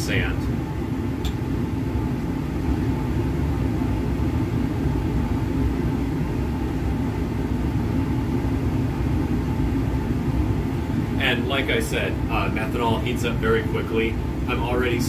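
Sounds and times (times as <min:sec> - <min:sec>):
fume hood exhaust rumble: 0:00.0 - 0:15.0.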